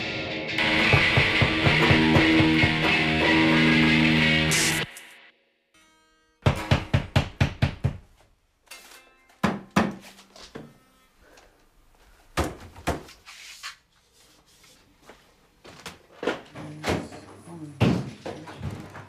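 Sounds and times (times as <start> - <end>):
thuds and knocks in small room: 0.6 - 3.0, 6.4 - 8.3, 9.4 - 10.0, 12.3 - 13.1, 15.7 - 19.0.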